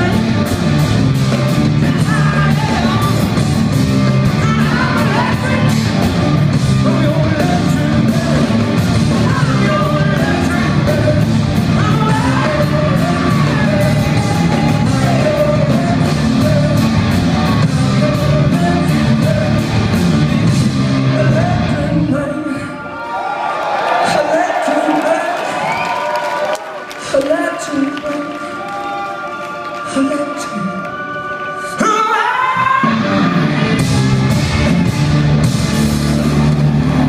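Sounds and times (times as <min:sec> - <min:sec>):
blues-rock band playing live: 0:00.0 - 0:22.3, 0:32.5 - 0:37.0
man singing: 0:01.8 - 0:03.5, 0:04.3 - 0:06.0, 0:06.8 - 0:22.9, 0:29.3 - 0:33.0.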